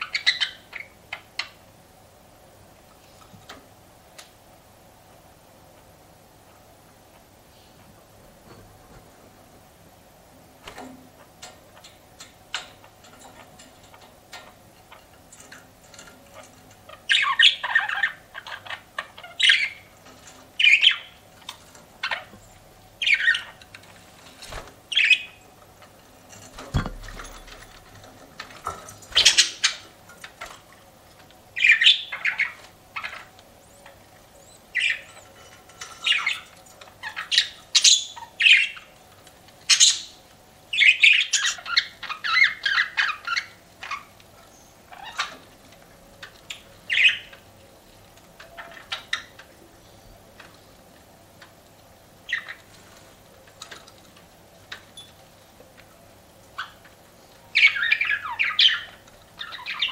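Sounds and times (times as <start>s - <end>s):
budgerigars chirping: 0.0s - 1.6s, 16.9s - 20.0s, 20.6s - 21.2s, 23.0s - 23.6s, 24.9s - 25.5s, 29.1s - 29.8s, 31.6s - 35.4s, 36.0s - 39.0s, 39.7s - 44.1s, 46.5s - 47.4s, 57.6s - 59.9s.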